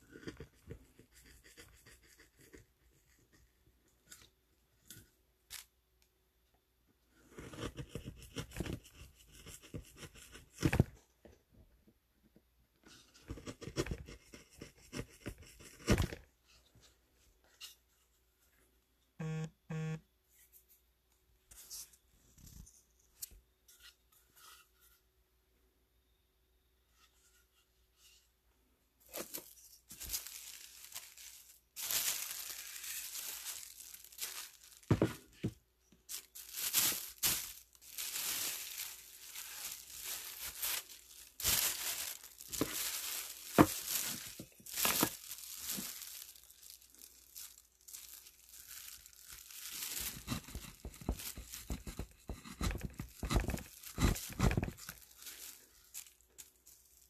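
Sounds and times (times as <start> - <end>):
plastic sheeting crinkling: 29.1 - 35.4, 36.0 - 52.1, 52.8 - 57.0.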